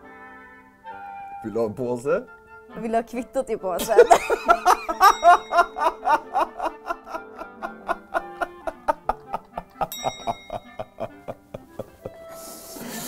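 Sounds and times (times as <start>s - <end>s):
background music: 0.0s - 13.0s
man laughing hard: 3.8s - 12.2s.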